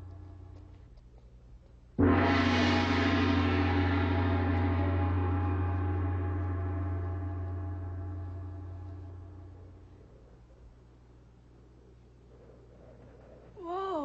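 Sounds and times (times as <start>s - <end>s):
large gong ringing: 2.0s - 9.9s.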